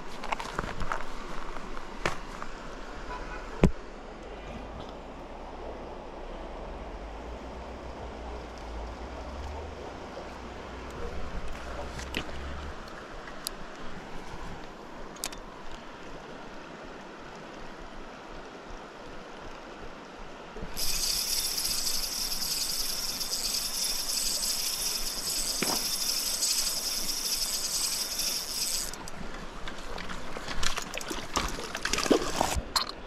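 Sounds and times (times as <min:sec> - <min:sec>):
river running over stones: 0:00.0 - 0:33.0
loud high-pitched buzz: 0:20.8 - 0:29.0.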